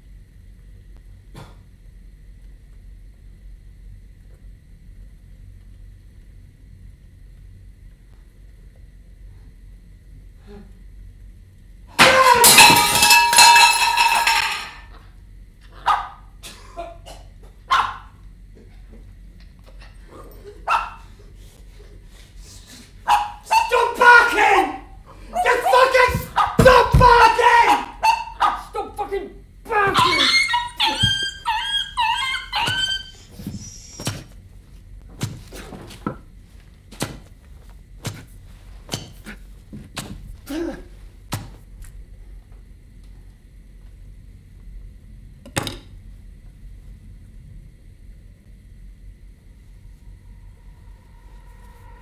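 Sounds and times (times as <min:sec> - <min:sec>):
high squealing yelps: 0:12.0 - 0:12.8, 0:15.8 - 0:16.2, 0:23.1 - 0:28.7, 0:29.7 - 0:34.1
dog barking: 0:15.8 - 0:16.3, 0:17.7 - 0:18.1, 0:20.6 - 0:21.1, 0:23.1 - 0:23.7, 0:26.3 - 0:26.6, 0:27.8 - 0:28.7, 0:29.9 - 0:33.2.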